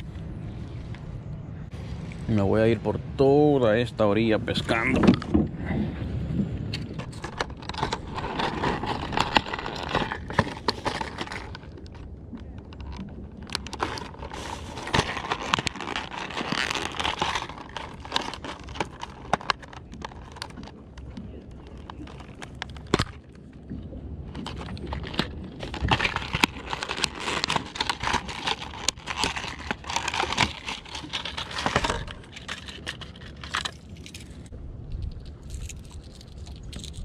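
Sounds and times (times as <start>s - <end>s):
plastic packaging crinkling: 7.0s - 23.4s, 24.3s - 34.5s, 35.2s - 37.0s.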